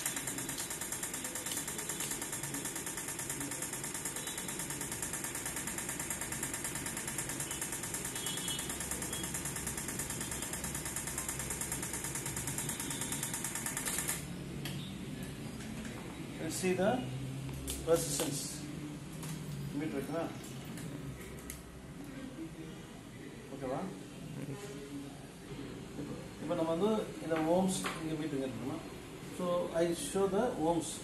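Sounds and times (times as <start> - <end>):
rapid ticking electrical buzz: 0.0 - 14.4.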